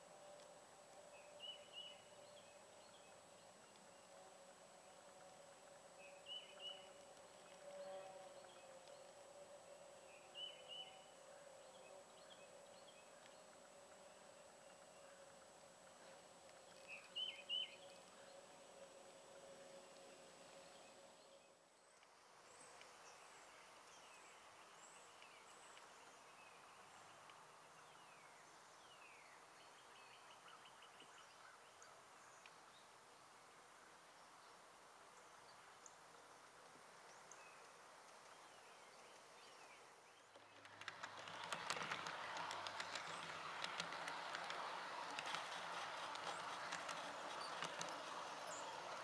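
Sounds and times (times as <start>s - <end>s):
model train wheels clattering: 40.2s - 49.0s.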